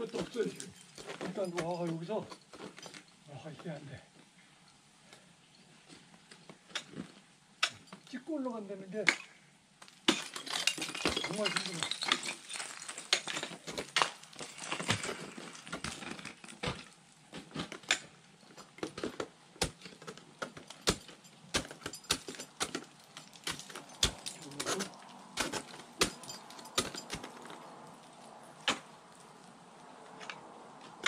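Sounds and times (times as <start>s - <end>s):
ice axe striking ice: 9.0s - 27.7s, 28.6s - 29.0s.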